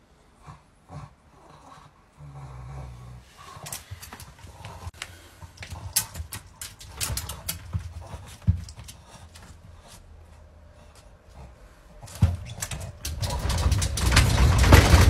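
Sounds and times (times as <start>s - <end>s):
dog claws clicking and tapping: 3.6s - 9.7s, 12.0s - 15.0s.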